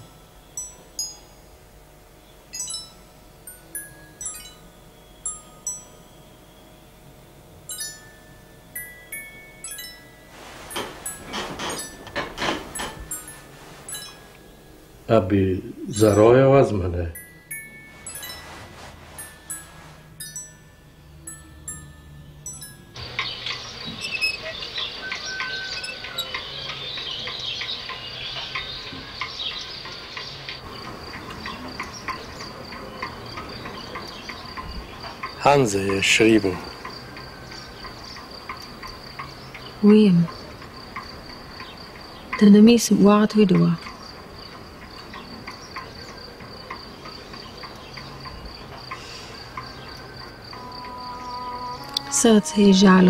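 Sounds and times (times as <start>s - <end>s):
crickets chirping: 0.0s - 53.0s
thin high trill: 2.5s - 6.8s, 7.6s - 23.2s, 50.3s - 53.0s.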